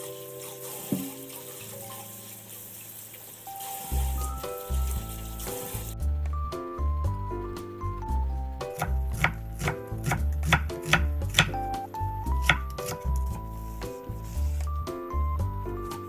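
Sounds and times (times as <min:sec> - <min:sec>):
knife slicing onion on wooden board: 0:08.7 - 0:14.6.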